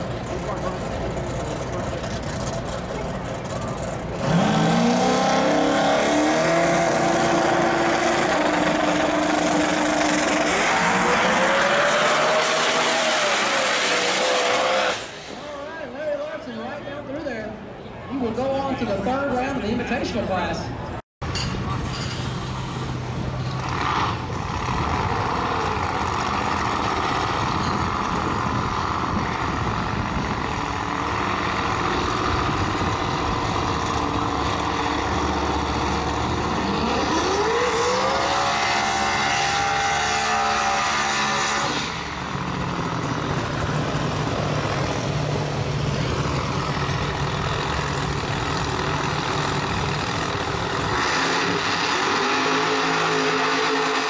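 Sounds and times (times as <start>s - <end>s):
race car engines running: 0.0s - 54.0s
engine revving: 4.0s - 15.3s, 23.6s - 54.0s.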